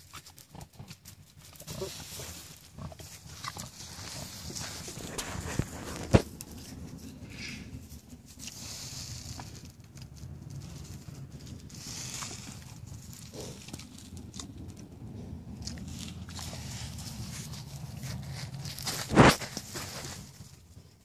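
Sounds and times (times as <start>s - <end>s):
pig grunting: 1.6s - 6.1s, 11.7s - 18.6s
scuffs in dirt: 1.6s - 7.9s, 15.8s - 20.8s.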